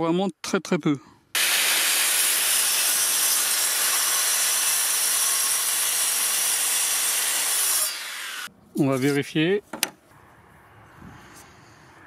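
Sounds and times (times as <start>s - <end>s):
mitre saw cutting board: 1.4s - 8.5s.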